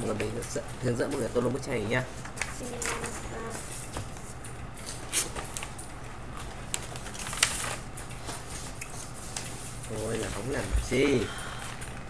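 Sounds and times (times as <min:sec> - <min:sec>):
steady low hum: 0:00.0 - 0:12.0
paper rustling: 0:02.4 - 0:10.6.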